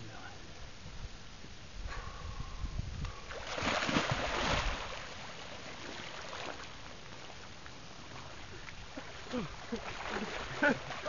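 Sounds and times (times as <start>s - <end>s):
wind rumble on microphone: 0.0s - 4.9s
splash into icy water: 3.3s - 5.1s.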